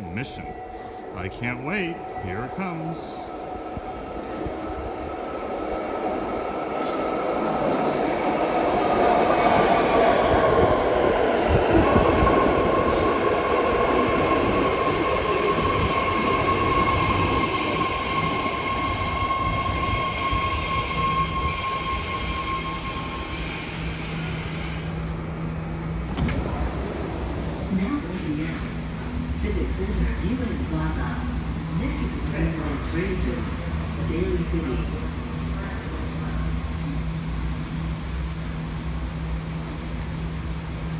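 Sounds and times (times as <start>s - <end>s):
subway train rumble: 0.0s - 40.9s
high braking whine: 14.4s - 28.0s.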